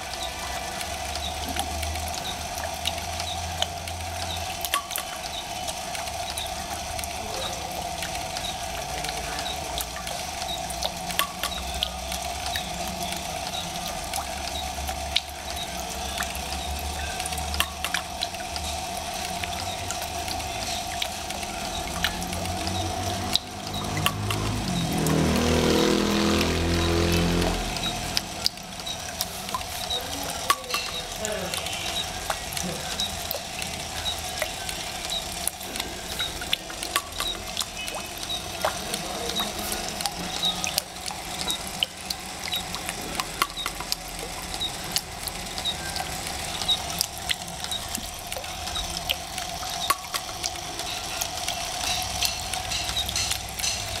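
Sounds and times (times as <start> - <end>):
sharp clicks from spinning wheel: 0.0 - 54.0
steady hum: 0.0 - 54.0
water splashing into a basin: 0.0 - 54.0.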